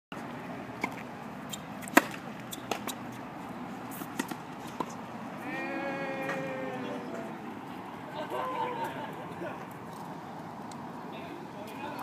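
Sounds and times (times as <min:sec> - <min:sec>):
tennis ball bouncing: 0:00.8 - 0:03.2, 0:03.9 - 0:05.0
tennis ball struck by racket: 0:01.8 - 0:03.1, 0:03.9 - 0:05.0.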